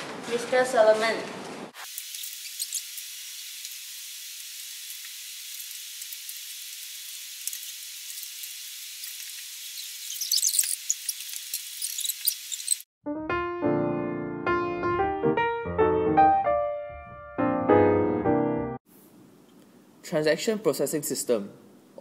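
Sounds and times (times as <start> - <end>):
steady hiss: 1.8 - 12.8
small clicks and crackles: 4.9 - 12.8.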